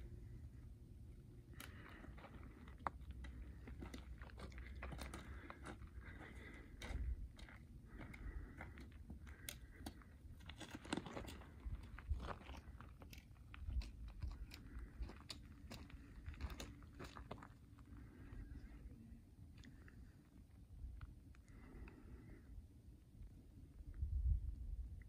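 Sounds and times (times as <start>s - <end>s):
footsteps on gravel trail: 1.5s - 18.8s.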